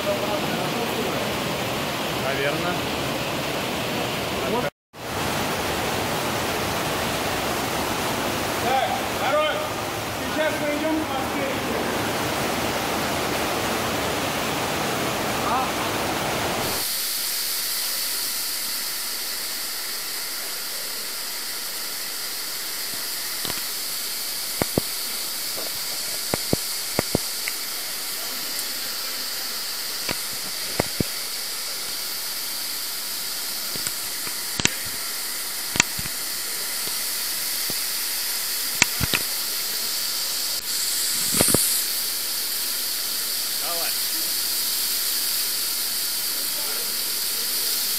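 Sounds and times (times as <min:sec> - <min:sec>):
water rushing through tunnel: 0:00.0 - 0:47.9
sharp clicks and knocks: 0:22.9 - 0:23.7, 0:24.5 - 0:27.6, 0:30.0 - 0:31.2, 0:33.7 - 0:35.0, 0:35.6 - 0:36.2, 0:38.8 - 0:39.3.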